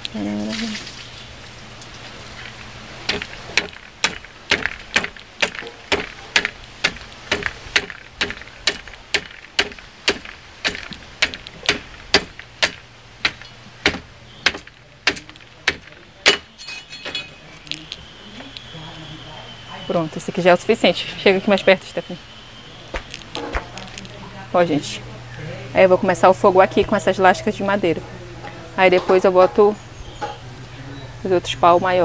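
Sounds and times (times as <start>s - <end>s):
machete chopping wood: 3.1s - 16.6s.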